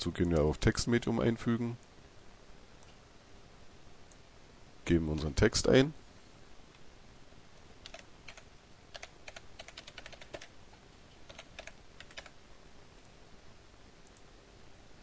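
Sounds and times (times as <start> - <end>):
keyboard typing: 7.8 - 10.5, 11.2 - 12.4.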